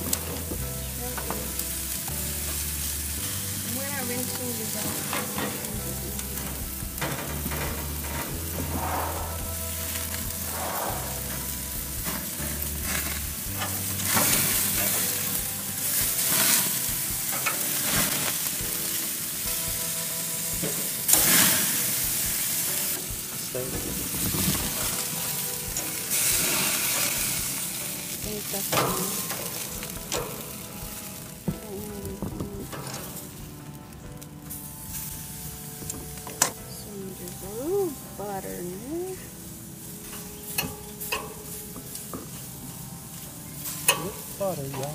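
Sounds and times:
steaks sizzling on grill: 0:00.0 - 0:44.9
metal tongs clicking on grate: 0:17.3 - 0:18.3, 0:28.6 - 0:30.6, 0:32.7 - 0:33.2, 0:40.1 - 0:42.5, 0:43.7 - 0:44.9.

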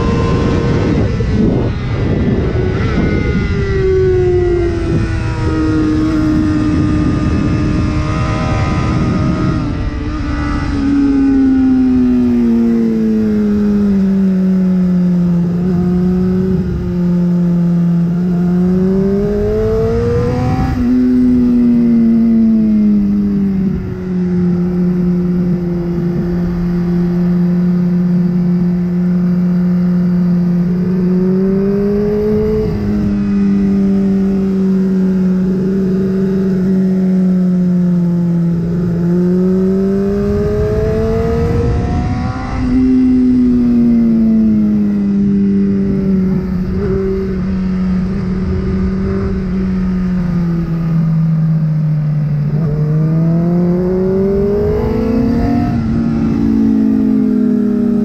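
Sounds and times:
wind rushing: 0:00.0 - 0:11.2
sport bike engine running hard: 0:00.0 - 0:58.0.

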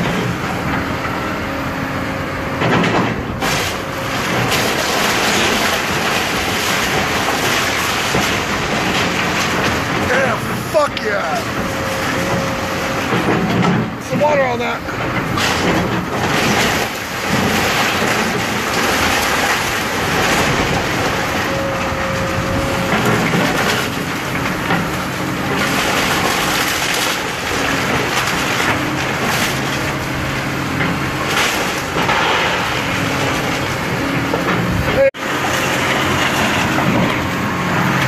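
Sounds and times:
excavator diesel engine: 0:00.0 - 0:38.0
wood crunching and cracking: 0:03.1 - 0:37.4.

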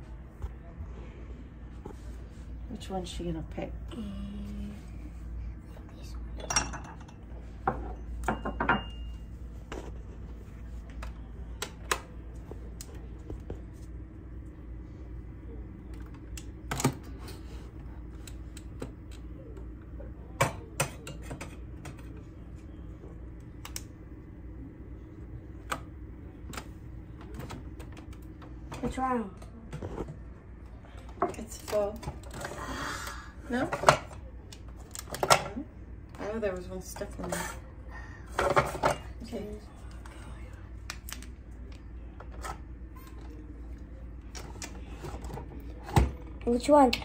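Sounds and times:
faint steady hum: 0:00.0 - 0:47.0
porcelain cups clinking: 0:06.4 - 0:09.2.

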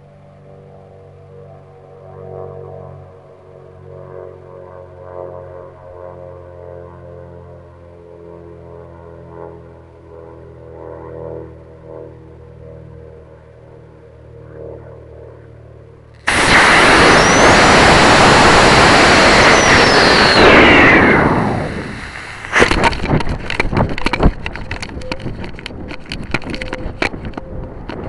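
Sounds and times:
rocket motor rushing burn: 0:16.2 - 0:28.0
wind buffeting microphone: 0:16.3 - 0:28.0.

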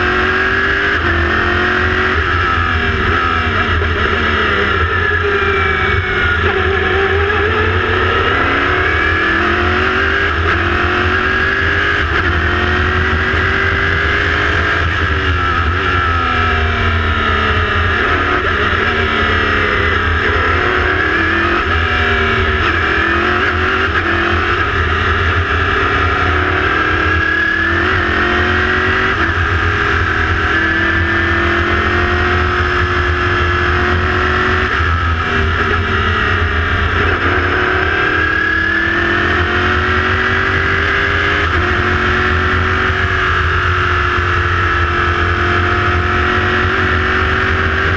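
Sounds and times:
race car engine revving: 0:00.0 - 0:47.9.

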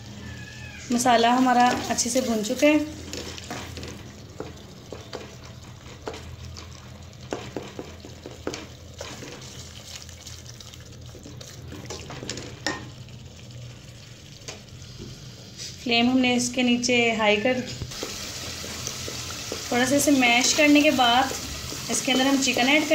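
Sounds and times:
wooden spoon stirring paste: 0:00.9 - 0:12.6, 0:17.9 - 0:22.9
paste sizzling in oil: 0:00.9 - 0:15.9, 0:17.9 - 0:22.9
spoon knocking and scraping pot: 0:07.2 - 0:09.5, 0:11.7 - 0:12.9.

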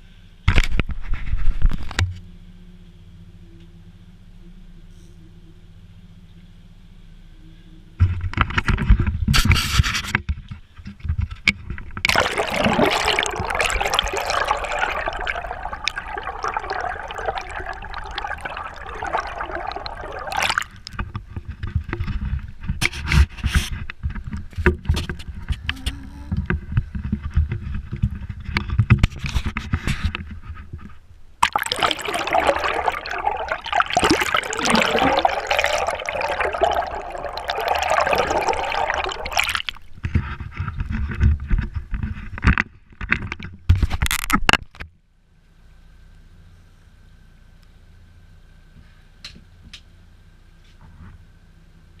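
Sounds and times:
water rushing and gurgling: 0:12.1 - 0:21.0, 0:31.4 - 0:40.0.

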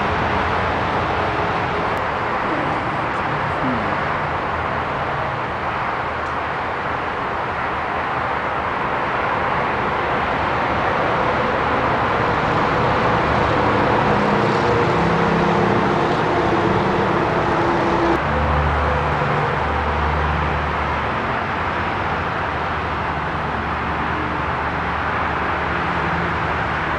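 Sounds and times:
machinery hum: 0:02.0 - 0:05.5.

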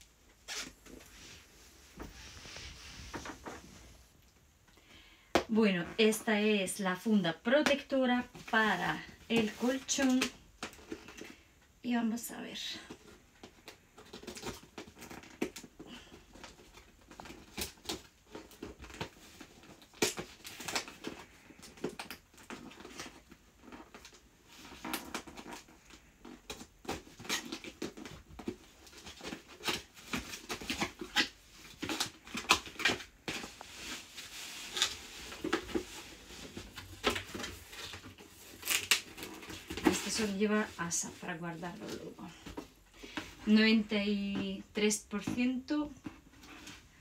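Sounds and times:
tape tearing: 0:16.4 - 0:40.3.

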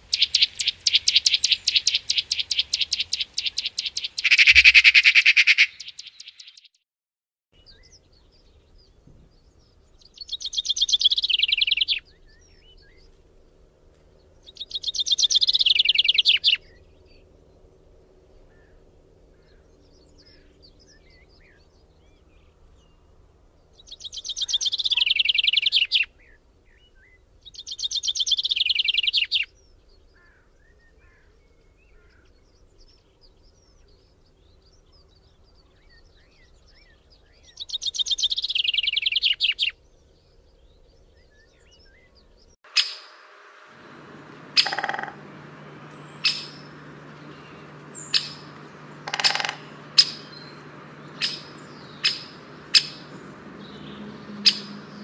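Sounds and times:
loud rapid bird trills: 0:00.0 - 0:06.6, 0:42.7 - 0:55.0
birds chirping: 0:00.0 - 0:06.7, 0:07.6 - 0:55.0
steady low hum: 0:43.1 - 0:55.0.

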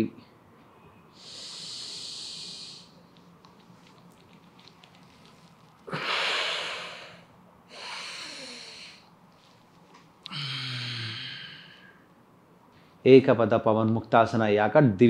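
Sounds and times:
man breathing deeply: 0:01.1 - 0:03.0, 0:05.9 - 0:09.1, 0:10.3 - 0:12.1.

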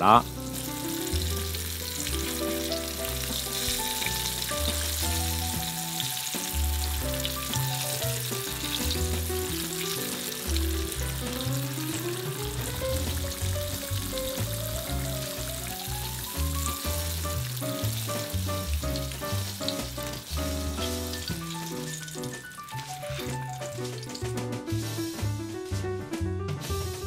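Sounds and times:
background music with bass line: 0:00.0 - 0:27.0
tofu sizzling in hot oil: 0:00.2 - 0:25.8.

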